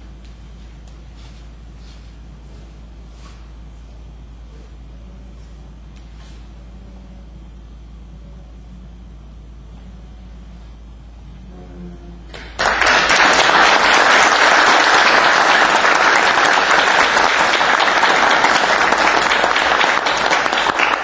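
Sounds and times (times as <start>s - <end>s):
audience applauding: 12.3s - 21.0s.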